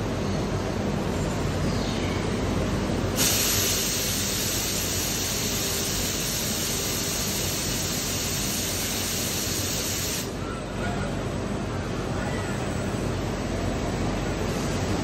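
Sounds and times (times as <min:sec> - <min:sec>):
machinery hum: 0:00.0 - 0:15.0
gas jet hissing: 0:03.2 - 0:10.3.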